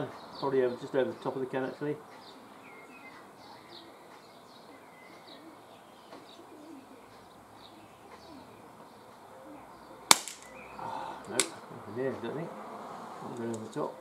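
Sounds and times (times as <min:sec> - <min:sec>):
small birds chirping: 0:00.0 - 0:14.0
pigeon cooing: 0:04.7 - 0:12.2
air pistol shot: 0:10.1 - 0:10.5.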